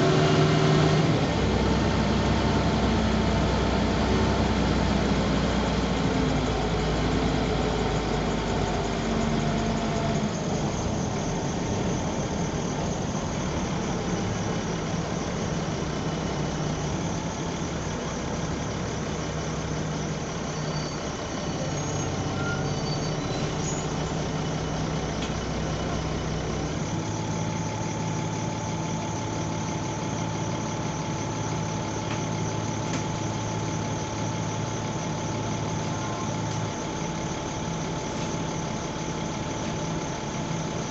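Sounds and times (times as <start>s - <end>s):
bus diesel engine running: 0.0s - 40.9s.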